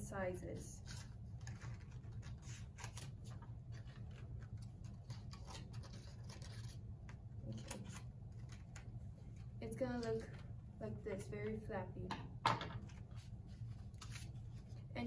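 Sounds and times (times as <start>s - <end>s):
scissors snipping paper: 0.8s - 6.8s.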